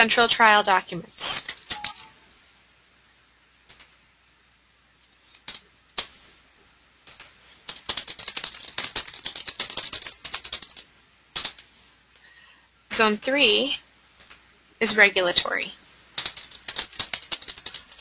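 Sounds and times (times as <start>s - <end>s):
computer keyboard typing: 1.2s - 2.1s, 3.7s - 3.9s, 7.0s - 11.7s, 14.2s - 14.4s, 16.2s - 18.0s.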